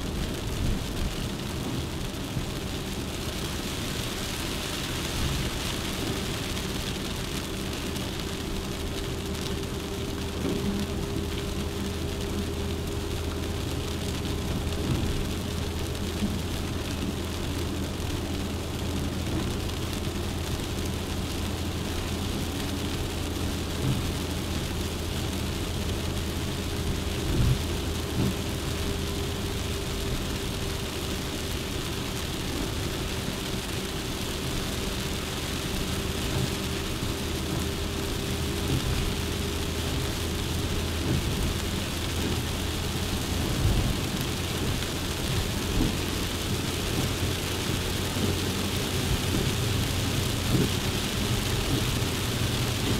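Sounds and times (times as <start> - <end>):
car engine drone: 0.0 - 52.9
tyres humming on road: 0.0 - 52.9.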